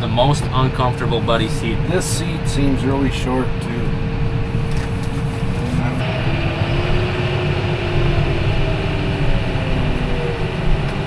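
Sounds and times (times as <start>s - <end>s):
faint wavering whine: 4.2s - 11.0s.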